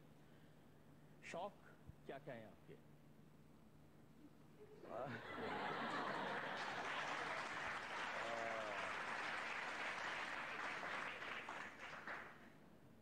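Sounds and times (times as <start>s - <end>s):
audience applauding: 5.8s - 12.5s.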